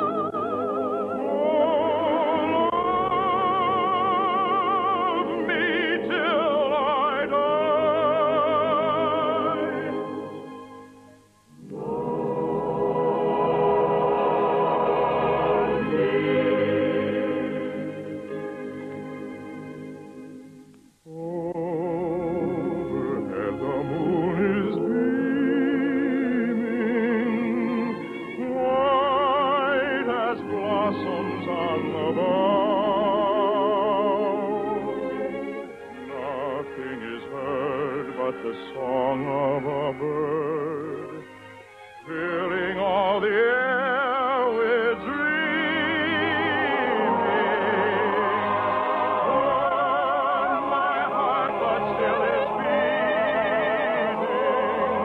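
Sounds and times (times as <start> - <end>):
operatic singing: 0.0 - 55.0
orchestral accompaniment: 22.3 - 55.0.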